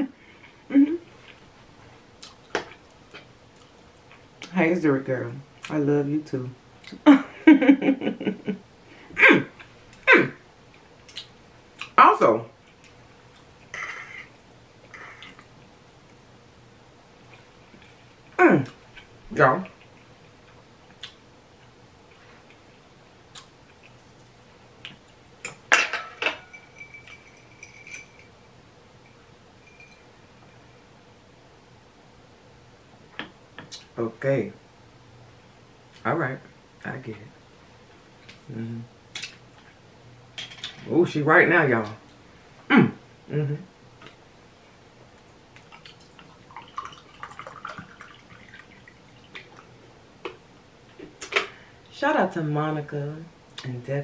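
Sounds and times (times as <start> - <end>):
fork and glass clinking: 25.4 - 28.4, 29.1 - 30.1
faint high ringing: 25.9 - 30.9
water pouring into glass: 46.0 - 49.3.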